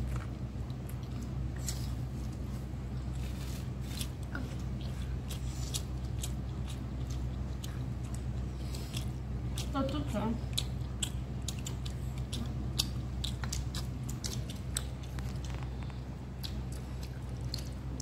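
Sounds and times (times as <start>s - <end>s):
person chewing: 0.0s - 9.8s, 10.4s - 18.0s.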